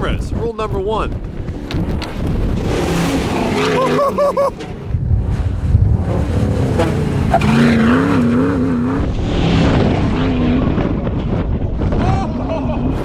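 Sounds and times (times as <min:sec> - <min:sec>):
tires on gravel: 0:01.0 - 0:13.0
engine revving hard: 0:02.4 - 0:04.4, 0:05.0 - 0:11.2.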